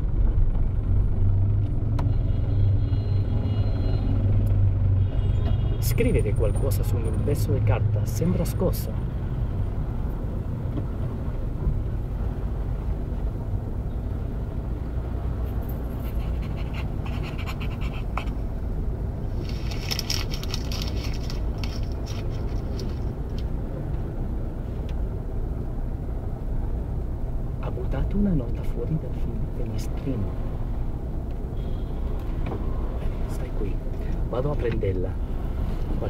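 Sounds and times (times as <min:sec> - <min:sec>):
car interior rumble: 0:08.9 - 0:36.0
scratchy rustling: 0:19.3 - 0:23.2.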